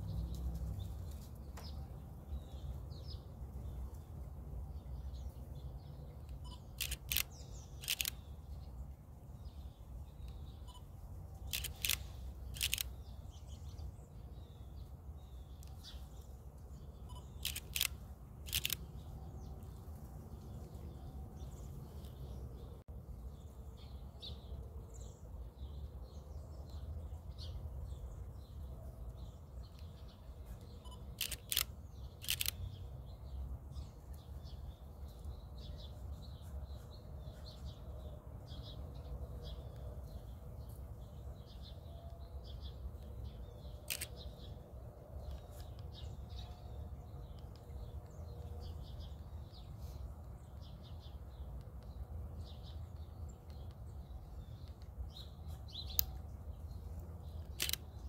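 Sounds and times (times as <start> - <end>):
camera shutter clicks: 6.8 - 8.3, 11.5 - 12.9, 17.1 - 18.9, 30.9 - 32.6, 43.9 - 44.1, 57.5 - 57.9.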